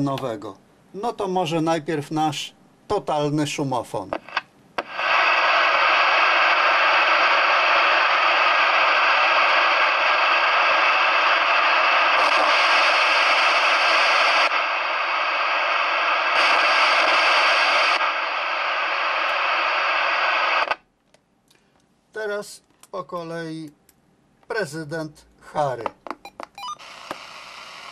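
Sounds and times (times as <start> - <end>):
radio receiver hissing: 4.1 - 20.8, 26.6 - 27.9.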